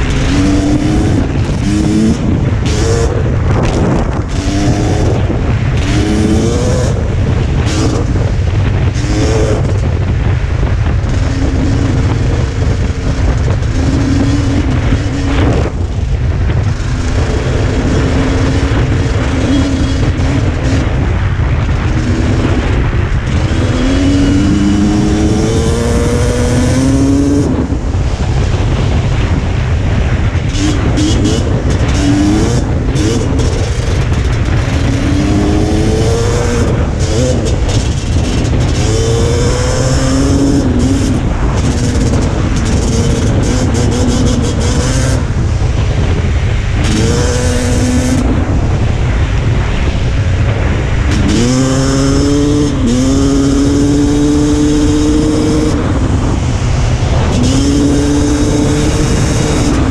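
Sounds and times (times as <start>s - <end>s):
dirt bike engine revving: 0.0s - 59.9s
wind rumble on microphone: 0.0s - 59.9s.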